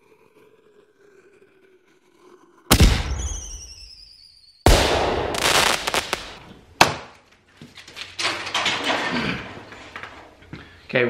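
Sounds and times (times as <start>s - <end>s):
sharp crack: 2.7s - 3.7s, 4.7s - 7.2s
falling whistle: 3.0s - 4.7s
loud bang: 4.7s - 7.0s.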